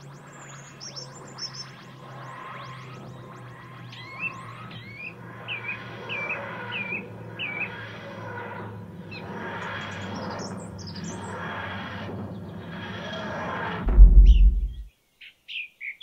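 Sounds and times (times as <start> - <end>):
birds twittering: 0.0 - 16.0
soft rushing noise: 13.8 - 14.9.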